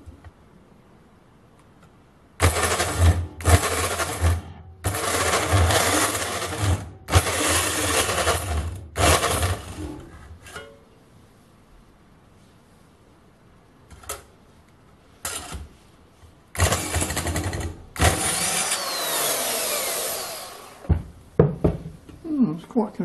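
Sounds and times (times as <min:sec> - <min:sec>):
band saw cutting metal tubing: 0:02.4 - 0:10.0, 0:16.6 - 0:20.9.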